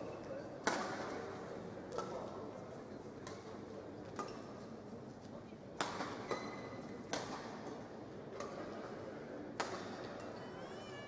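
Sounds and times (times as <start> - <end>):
racket striking shuttlecock: 0.6 - 1.2, 5.8 - 7.8, 9.6 - 10.0.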